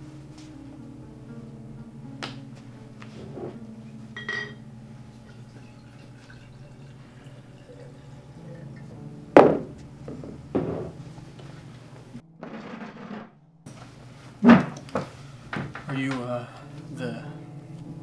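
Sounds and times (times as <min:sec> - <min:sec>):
glass and bottle knocking on wood: 0:04.2 - 0:04.6, 0:09.4 - 0:11.0
glass clinking: 0:04.2 - 0:11.0
liquid pouring into glass: 0:04.3 - 0:09.0.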